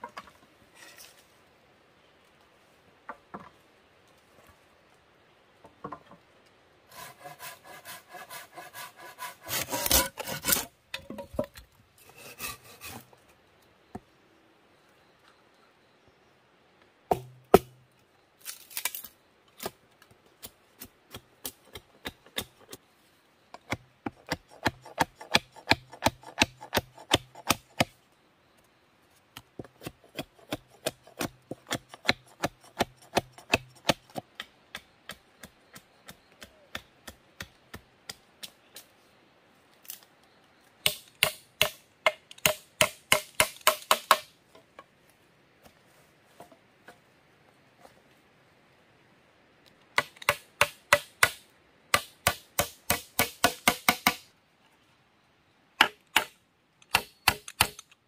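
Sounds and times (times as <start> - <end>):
machete chopping bamboo: 17.1 - 17.8, 23.6 - 27.9, 29.6 - 38.6, 40.8 - 44.3, 50.0 - 54.3, 55.8 - 57.9.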